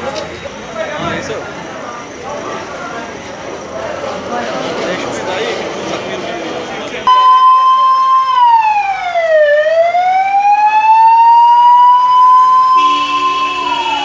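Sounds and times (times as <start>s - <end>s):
ambulance siren: 7.1s - 14.0s
second steady siren tones: 7.1s - 14.0s.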